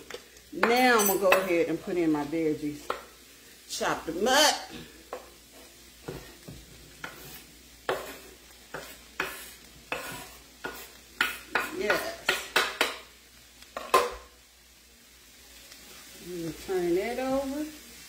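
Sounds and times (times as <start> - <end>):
faint sizzling in pan: 0.0 - 18.0
knife scraping wooden cutting board: 7.0 - 10.9.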